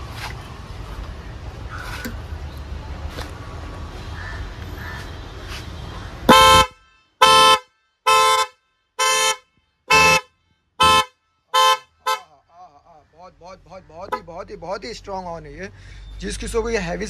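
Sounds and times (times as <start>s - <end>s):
twin-tone car horn blasts: 6.2s - 12.4s.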